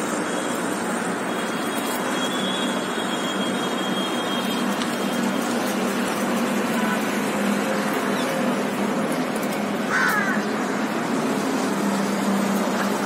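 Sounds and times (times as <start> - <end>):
city traffic noise: 0.0 - 13.0.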